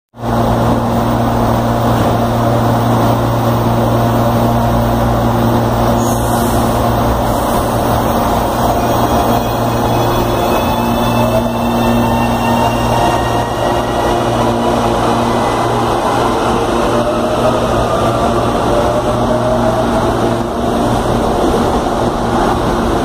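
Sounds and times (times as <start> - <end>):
electric train droning hum: 0.2 - 23.0.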